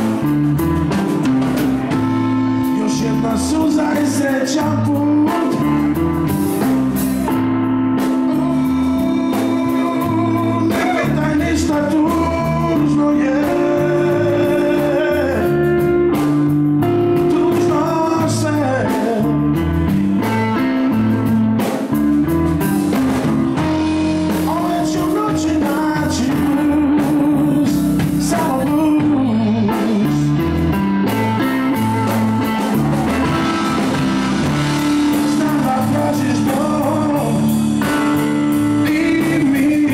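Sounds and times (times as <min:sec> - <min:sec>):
bass guitar: 0:00.0 - 0:39.9
drum kit: 0:00.0 - 0:39.9
electric guitar: 0:00.0 - 0:39.9
man singing: 0:01.8 - 0:07.4, 0:08.0 - 0:21.4, 0:23.6 - 0:39.9.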